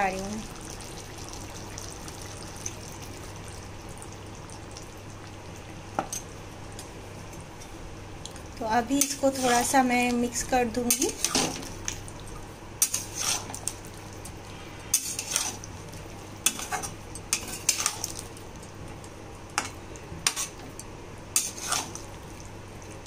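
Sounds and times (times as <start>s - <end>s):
spatula scraping a pan: 9.0s - 9.8s, 12.8s - 13.6s, 14.9s - 15.6s, 21.4s - 22.0s.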